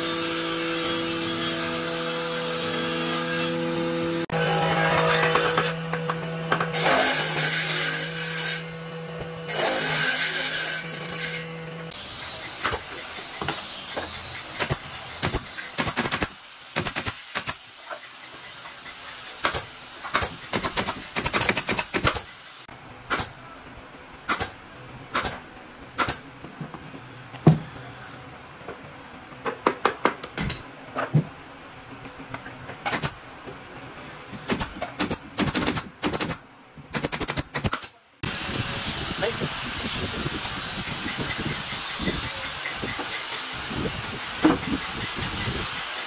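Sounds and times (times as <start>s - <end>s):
nail gun firing: 14.6s - 17.6s, 19.4s - 22.4s, 23.1s - 23.4s, 24.3s - 25.4s, 26.0s - 26.2s, 32.9s - 33.2s, 34.5s - 38.0s.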